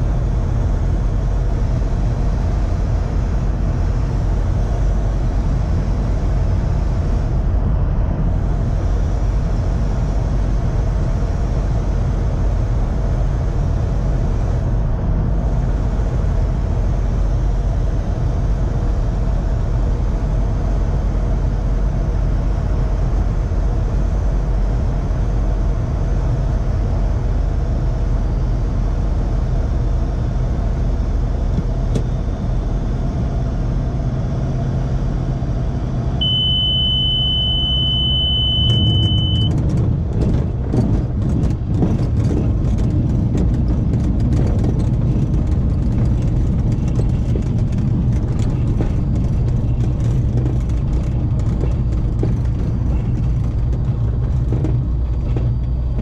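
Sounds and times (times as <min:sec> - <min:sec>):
aircraft engine idling drone: 0:00.0 - 0:56.0
steady high tone: 0:36.2 - 0:39.5
wheels rumbling and rattling on grass: 0:38.6 - 0:56.0.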